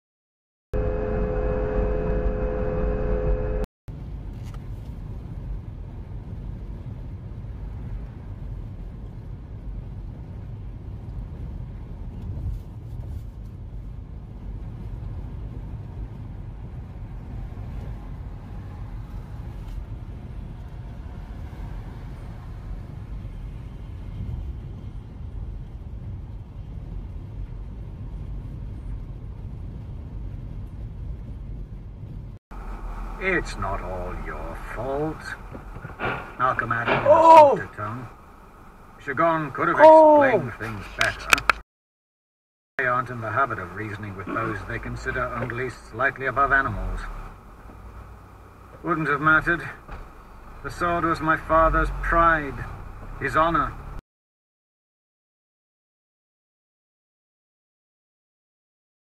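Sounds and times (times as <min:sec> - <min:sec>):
two-note tone: 0:00.8 - 0:03.6
car road and engine rumble: 0:00.8 - 0:41.6, 0:42.8 - 0:54.0.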